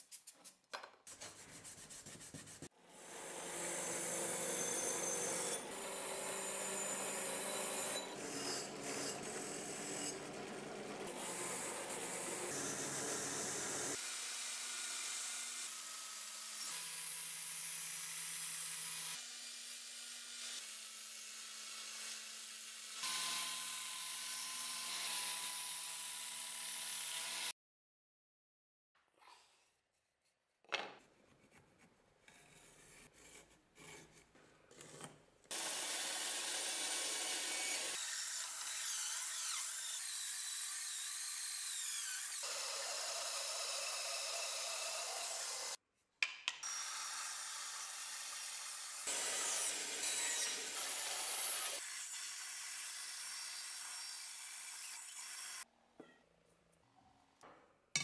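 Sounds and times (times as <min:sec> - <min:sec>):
band saw cutting wood: 0:02.9 - 0:27.5, 0:35.5 - 0:45.8, 0:46.6 - 0:55.6.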